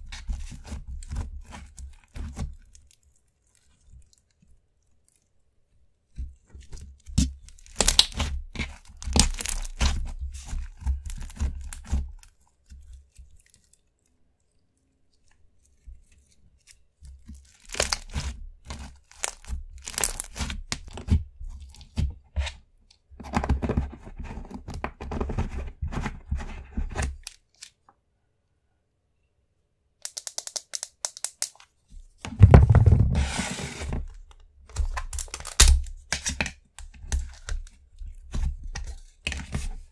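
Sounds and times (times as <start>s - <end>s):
slime stretching sounds: 6.1s - 13.8s, 17.2s - 22.5s
foam beads clicking and crackling: 9.0s - 9.8s, 19.0s - 20.4s, 30.0s - 31.7s.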